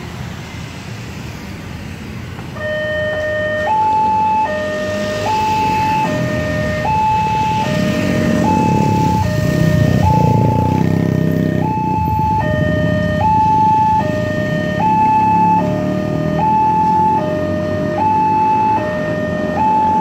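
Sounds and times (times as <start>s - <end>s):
two-tone crossing alarm: 2.6s - 20.0s
motorcycle engines running: 4.8s - 19.9s.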